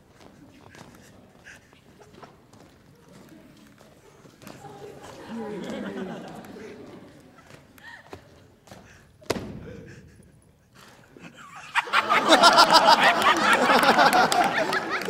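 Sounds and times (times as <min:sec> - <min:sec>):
crowd laughing and shouting: 0:04.4 - 0:08.5, 0:10.7 - 0:15.0
sharp thump with echo: 0:09.2 - 0:10.0.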